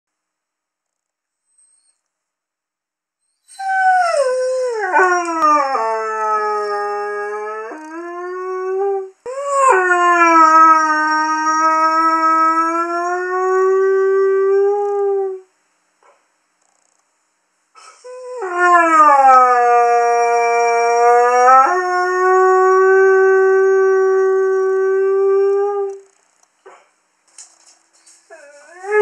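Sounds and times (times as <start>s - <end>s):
dog howling: 3.5s - 15.4s, 18.1s - 26.1s.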